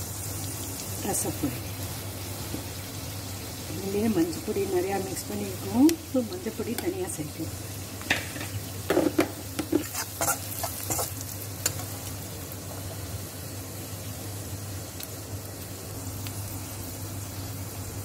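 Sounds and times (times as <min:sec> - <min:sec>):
spices sizzling in a pan: 0:00.0 - 0:18.0
spoon scraping and knocking pan: 0:08.1 - 0:11.9.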